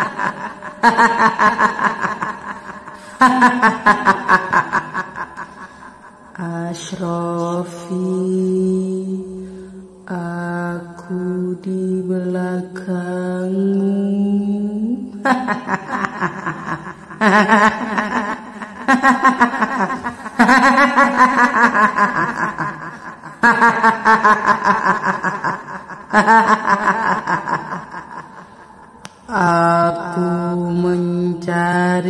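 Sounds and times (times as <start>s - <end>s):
woman cackling laughter: 0.0s - 6.1s, 15.2s - 29.0s.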